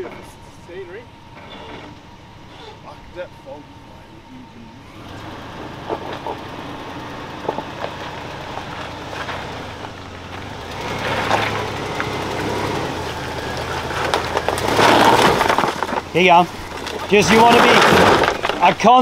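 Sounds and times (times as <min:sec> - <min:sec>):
engine running under load: 0:00.0 - 0:19.0
tyres crunching over rock: 0:07.2 - 0:19.0.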